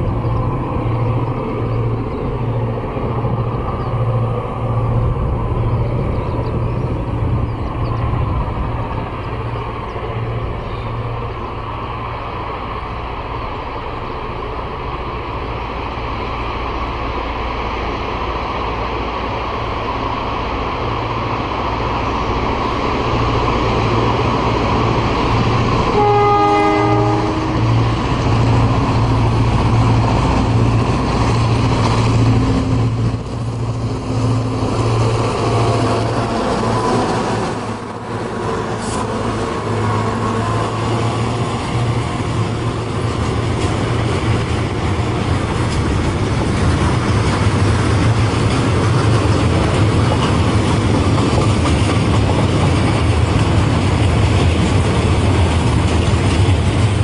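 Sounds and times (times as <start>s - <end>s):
locomotive horn blast: 25.9s - 27.8s.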